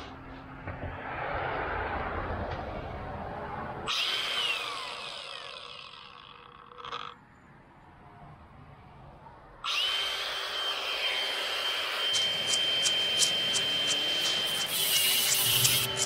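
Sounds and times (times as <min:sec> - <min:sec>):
angle grinder whining: 0:03.9 - 0:07.2, 0:09.6 - 0:16.0
sharp ticks: 0:12.1 - 0:16.0.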